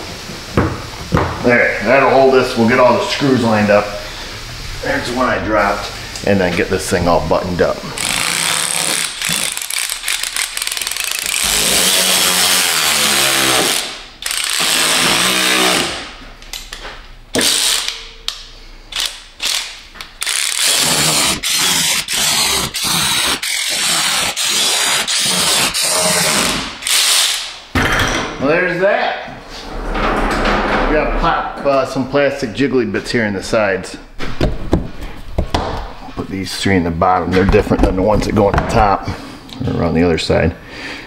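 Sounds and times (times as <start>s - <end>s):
cordless driver running screws: 8.0s - 11.9s, 18.9s - 25.6s.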